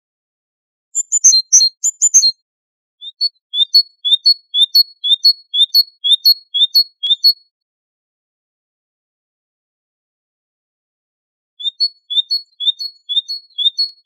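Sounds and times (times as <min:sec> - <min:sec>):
bird singing: 0:01.0 - 0:02.4, 0:03.0 - 0:07.5, 0:11.6 - 0:14.0.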